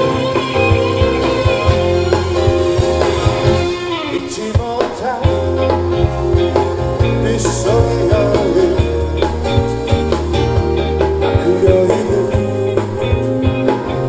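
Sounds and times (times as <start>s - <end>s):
live rock band playing: 0.0s - 14.0s
man singing into microphone: 3.8s - 5.7s, 7.0s - 9.2s, 11.3s - 13.3s.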